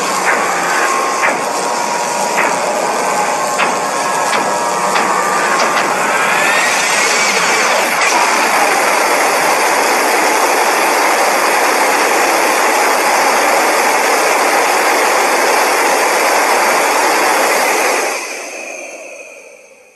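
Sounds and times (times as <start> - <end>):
harsh rushing noise: 0.0 - 13.1.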